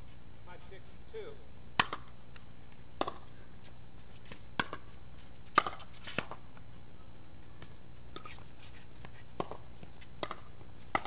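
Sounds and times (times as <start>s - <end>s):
paddles hitting plastic ball: 1.8s - 2.1s, 3.0s - 3.3s, 4.3s - 4.8s, 5.5s - 6.4s, 9.0s - 11.0s.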